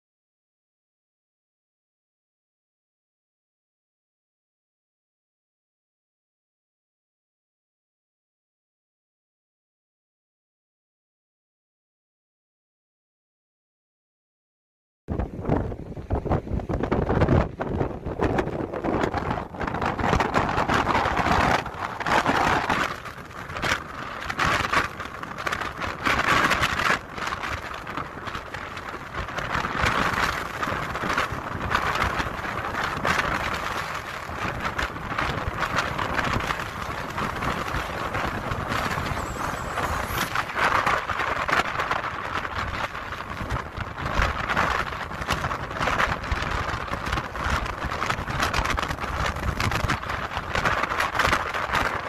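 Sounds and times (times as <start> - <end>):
wind gusts buffeting microphone: 15.1 - 52.0.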